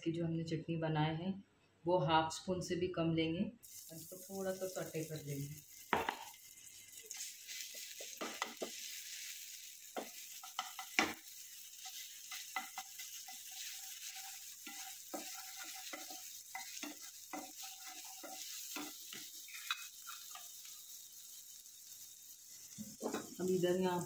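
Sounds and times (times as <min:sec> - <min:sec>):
food sizzling in oil: 0:03.6 - 0:24.0
spatula knocking and scraping pan: 0:05.9 - 0:06.4, 0:07.6 - 0:08.9, 0:09.9 - 0:20.5, 0:22.7 - 0:23.4.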